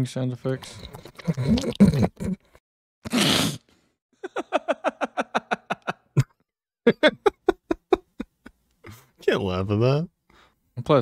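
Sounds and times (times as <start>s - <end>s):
person laughing: 4.2s - 8.5s.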